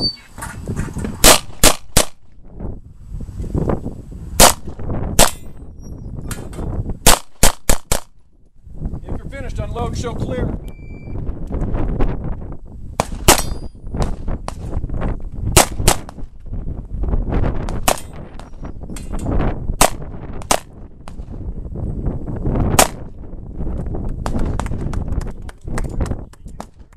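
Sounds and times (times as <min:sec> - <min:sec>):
handgun shots: 0:01.2 - 0:02.2, 0:04.4 - 0:05.5, 0:07.0 - 0:08.2, 0:13.0 - 0:14.6, 0:22.8 - 0:23.0
metallic ring of steel target: 0:13.3 - 0:13.9.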